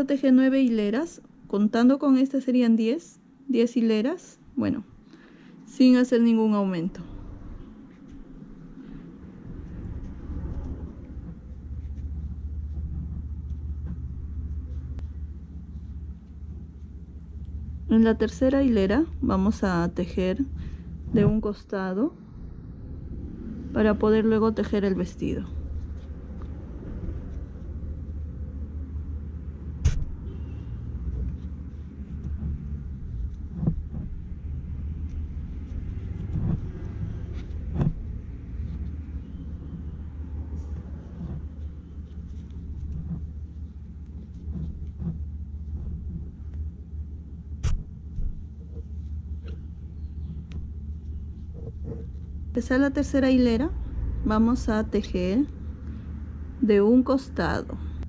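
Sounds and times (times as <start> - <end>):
low steady rumble: 0.0 - 58.0
sharp clicks and knocks: 29.8 - 30.2, 36.2 - 38.1, 47.6 - 50.7.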